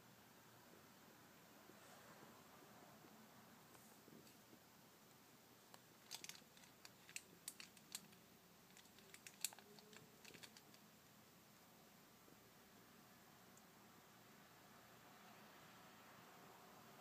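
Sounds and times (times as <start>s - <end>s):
faint small clicks and ticks: 5.1s - 10.8s.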